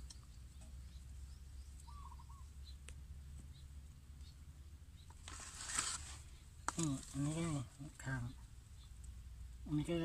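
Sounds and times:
bird chirping: 0:00.0 - 0:10.0
low steady rumble: 0:00.0 - 0:10.0
straw rustling in plastic basket: 0:05.2 - 0:07.5.

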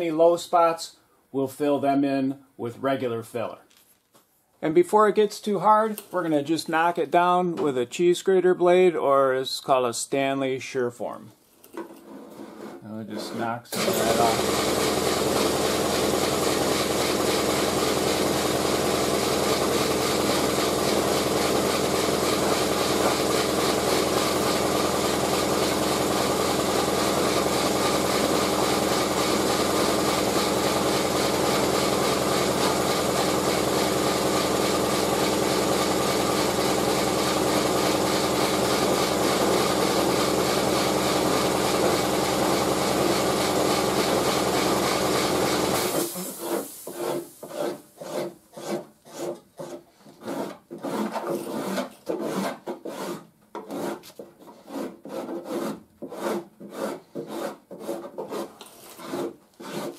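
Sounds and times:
even hiss: 0:45.9 - 0:47.7.

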